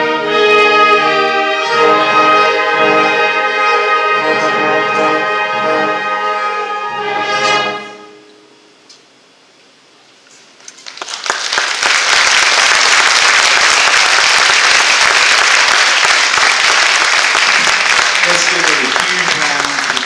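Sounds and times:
audience applause: 10.6 - 20.0.

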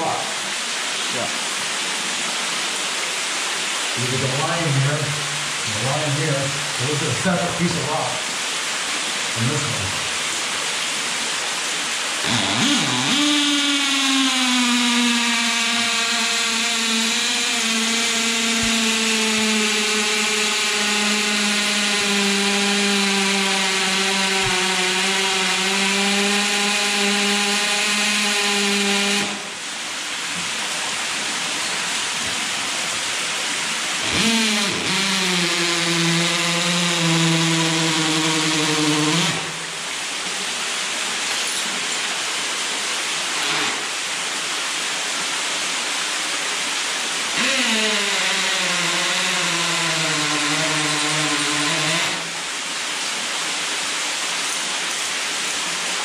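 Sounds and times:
cordless drill boring into rock: 12.2 - 29.6, 33.9 - 39.6, 43.3 - 44.0, 47.3 - 52.5.

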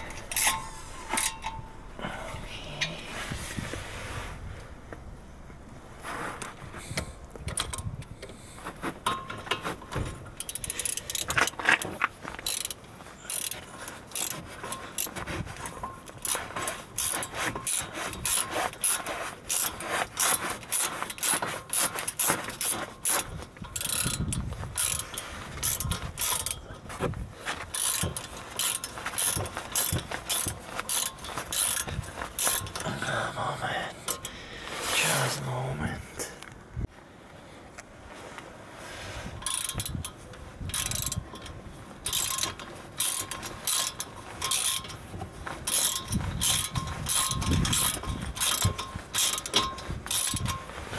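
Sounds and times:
hand ratchet clicking: 0.0 - 1.7, 9.0 - 26.6, 27.5 - 32.9, 39.4 - 50.9.

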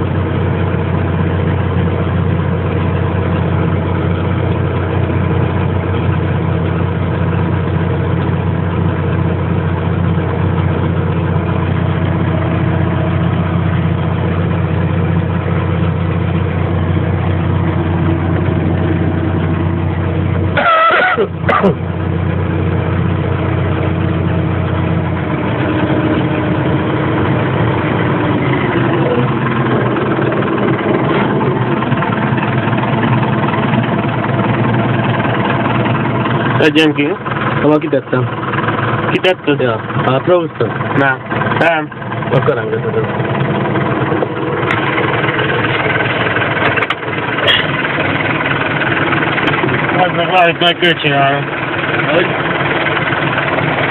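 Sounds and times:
tractor diesel engine running: 0.0 - 53.9
short high squeal: 20.6 - 21.7.

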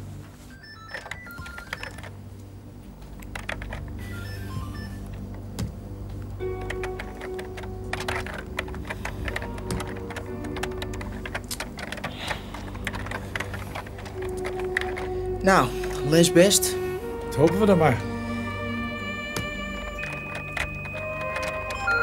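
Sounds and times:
background music: 0.0 - 22.0
typing on computer keyboard: 0.6 - 2.2, 3.2 - 5.7, 6.3 - 16.0, 18.8 - 22.0.

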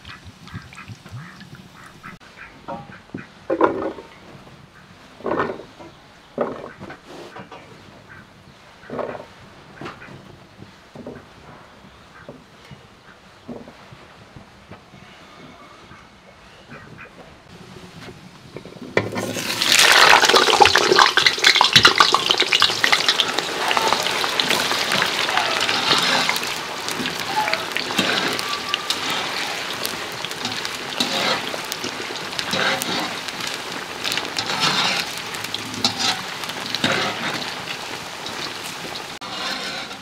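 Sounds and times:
wire skimmer stirring potatoes: 18.6 - 40.0
potatoes sizzling in hot oil: 19.1 - 40.0.

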